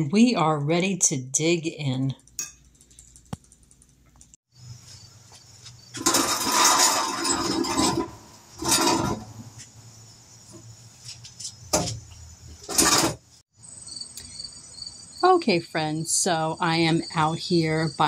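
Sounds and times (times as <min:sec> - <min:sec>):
metal chair scraping: 0:05.8 - 0:09.7, 0:11.7 - 0:13.4.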